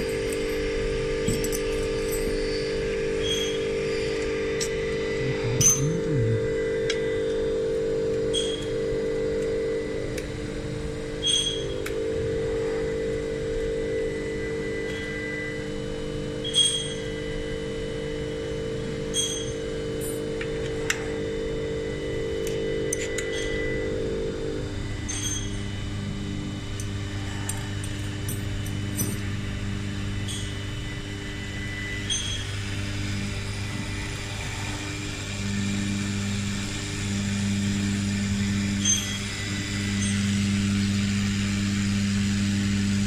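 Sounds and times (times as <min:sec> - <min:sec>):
bowl feeder humming: 0:00.0 - 0:43.0
sharp metallic clinks: 0:05.5 - 0:06.1.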